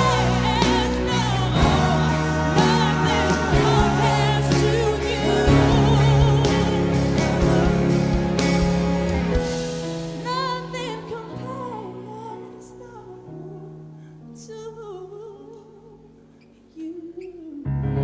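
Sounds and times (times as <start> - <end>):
woman singing with vibrato: 0.0 - 7.7, 10.2 - 13.8.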